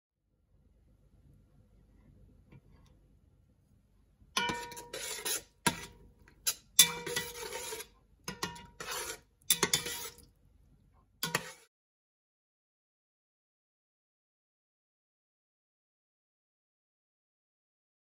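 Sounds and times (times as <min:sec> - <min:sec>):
faint ringing of pot: 0:04.4 - 0:05.2
spoon scraping metal pot: 0:04.4 - 0:10.3, 0:11.2 - 0:11.7
spoon clicking on metal: 0:09.5 - 0:10.2.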